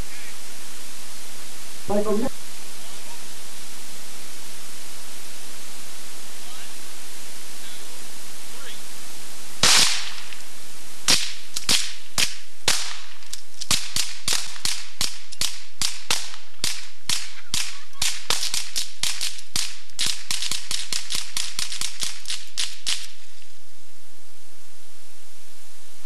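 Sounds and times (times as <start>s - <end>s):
rapid rifle fire: 9.6s - 10.3s, 11.1s - 23.1s.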